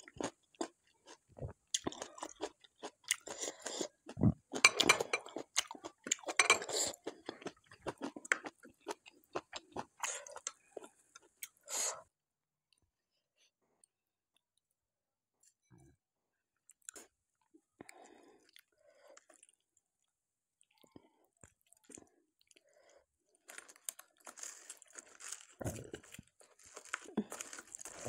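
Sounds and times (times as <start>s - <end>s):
food crackling and squishing: 0.0s - 11.6s, 20.8s - 28.0s.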